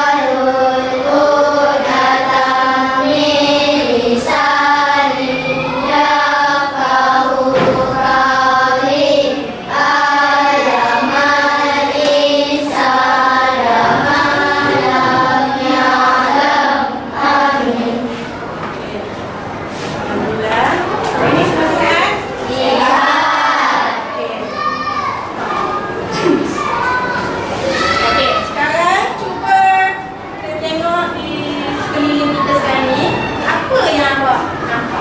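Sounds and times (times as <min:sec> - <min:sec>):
schoolchildren chanting in unison: 0:00.0 - 0:18.2, 0:22.4 - 0:28.5.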